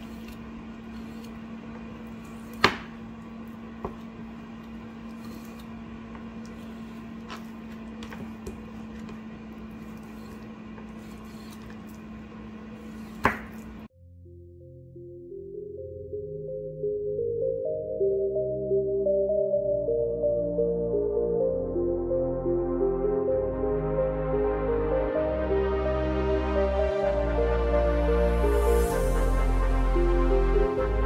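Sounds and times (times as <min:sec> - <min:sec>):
knife cutting raw chicken: 0:00.0 - 0:01.5, 0:04.6 - 0:05.8, 0:06.4 - 0:13.8
steady low hum: 0:00.0 - 0:14.8.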